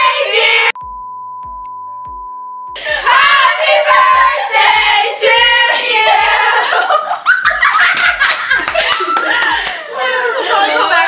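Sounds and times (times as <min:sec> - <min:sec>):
women laughing: 0:05.7 - 0:11.0.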